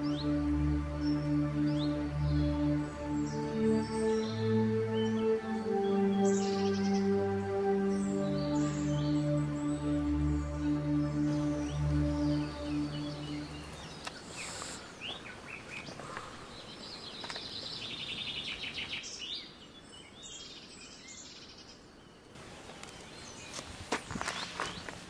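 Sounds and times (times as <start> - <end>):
birds chirping and calling: 0.0 - 21.6, 22.4 - 25.0
low steady hiss: 0.0 - 25.0
shoe scuffing on gravelly dirt: 23.0 - 25.0.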